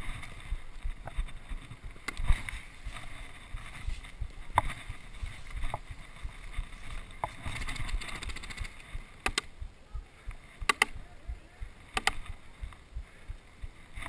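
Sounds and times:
rustling in dry grass: 0.0s - 14.0s
paintball markers firing: 9.2s - 9.5s, 10.6s - 11.0s, 11.9s - 12.4s.

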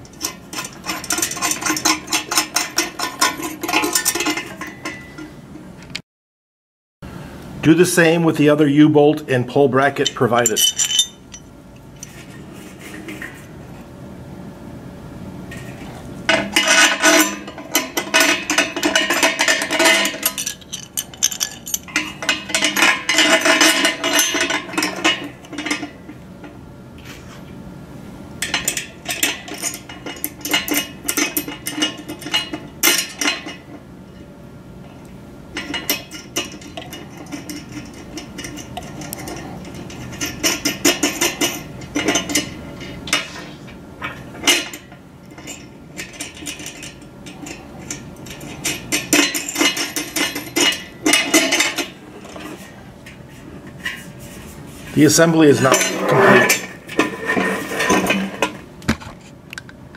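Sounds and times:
metal parts clinking and rattling: 0.0s - 5.3s, 10.0s - 13.5s, 15.5s - 26.2s, 28.4s - 33.8s, 35.6s - 54.3s, 55.0s - 59.3s.

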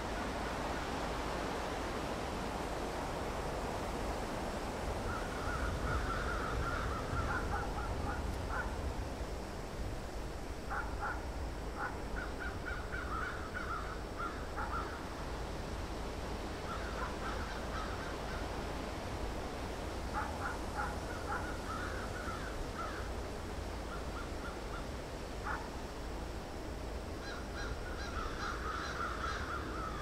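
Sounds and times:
crows cawing: 5.1s - 7.9s, 11.8s - 15.0s, 16.7s - 18.5s, 20.2s - 23.1s, 27.2s - 30.0s.

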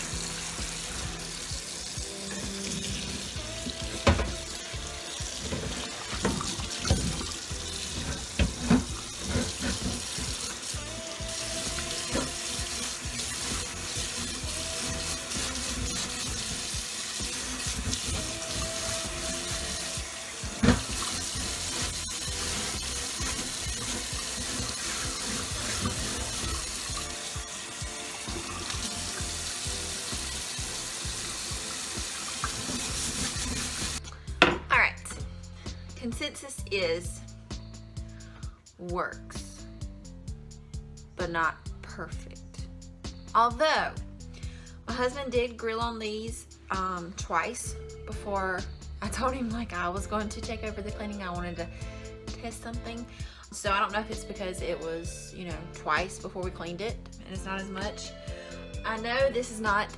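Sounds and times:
tap running into sink: 2.7s - 10.6s, 11.6s - 27.4s, 28.2s - 34.6s
grate clunking against sink: 7.9s - 10.4s.

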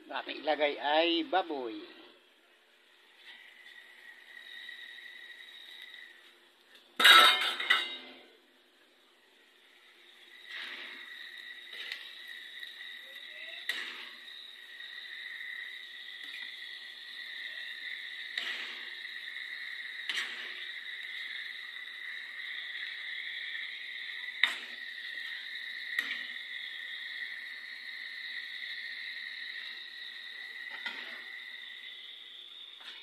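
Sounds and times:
high-pitched whine: 9.4s - 33.0s.

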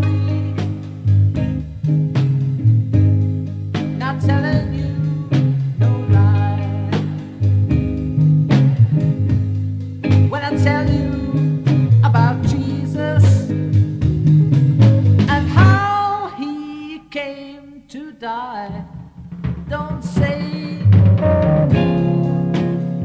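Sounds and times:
person singing: 0.0s - 1.5s, 3.8s - 7.8s, 8.5s - 9.5s, 10.1s - 13.6s, 15.2s - 19.0s, 19.7s - 23.0s
electric guitar: 0.0s - 16.4s, 18.7s - 23.0s
repeating bass line: 20.8s - 23.0s.

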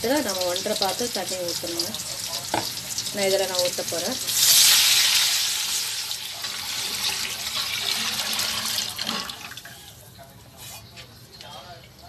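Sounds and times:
liquid pouring into pot: 4.3s - 9.8s.

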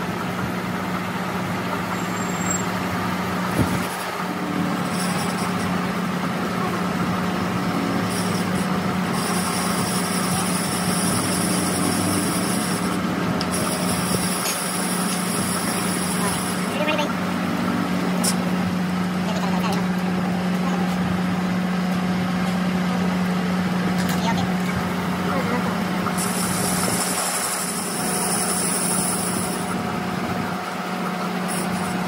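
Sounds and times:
lathe motor hum: 2.8s - 23.9s, 24.5s - 32.0s
high-pitched whine: 3.5s - 20.8s.

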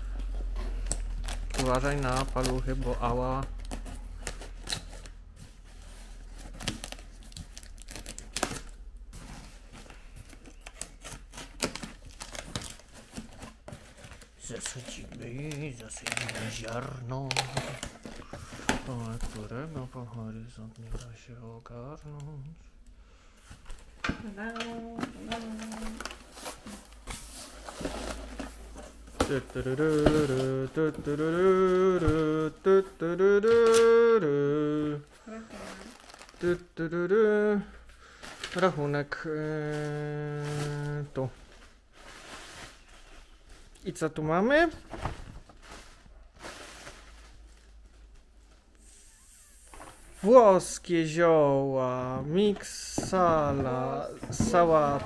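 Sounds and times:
cardboard crackling: 1.1s - 21.2s, 24.3s - 32.9s, 52.3s - 55.0s
tape tearing: 3.4s - 5.2s, 10.2s - 19.4s, 33.5s - 34.0s
person humming a tune: 24.3s - 26.1s, 29.2s - 37.8s, 39.4s - 41.1s.

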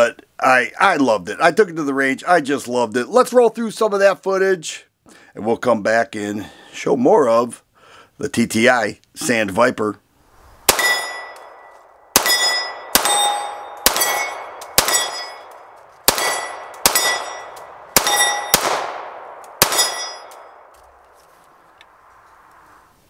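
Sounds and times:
steel target clanging: 10.7s - 18.8s, 19.6s - 20.6s
pistol shots: 10.7s - 20.7s.

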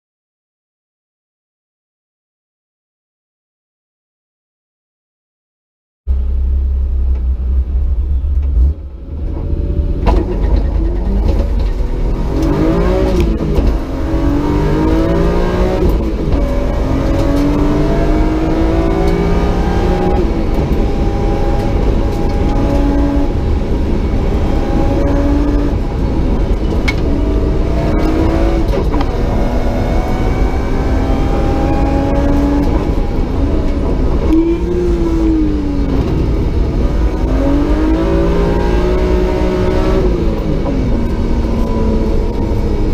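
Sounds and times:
car engine at full throttle: 6.1s - 42.9s.

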